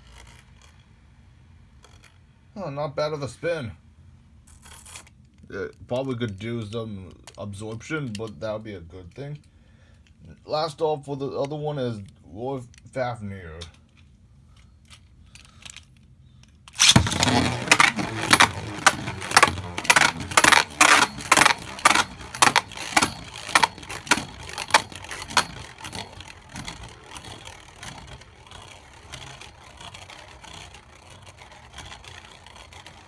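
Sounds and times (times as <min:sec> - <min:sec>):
spinning top clacking on plastic: 0:00.0 - 0:02.3, 0:13.6 - 0:33.0
spinning top launched: 0:16.7 - 0:33.0.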